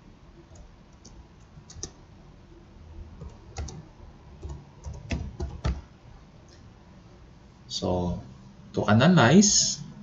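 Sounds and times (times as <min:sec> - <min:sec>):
keyboard typing: 0:00.5 - 0:02.0, 0:03.2 - 0:05.9.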